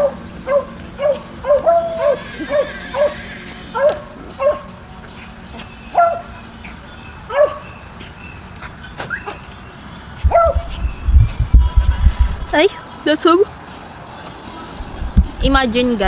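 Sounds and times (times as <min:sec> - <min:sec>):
dog yipping: 0:00.0 - 0:04.7, 0:05.5 - 0:06.4, 0:07.3 - 0:07.8, 0:08.9 - 0:09.4, 0:10.3 - 0:10.9.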